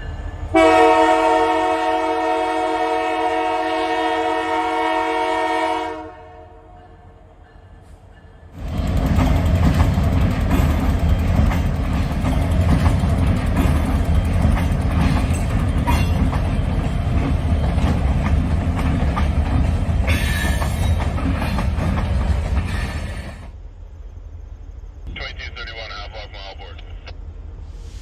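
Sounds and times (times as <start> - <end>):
locomotive rumble: 7.0 - 23.6
wheels clattering over rails: 8.6 - 23.1.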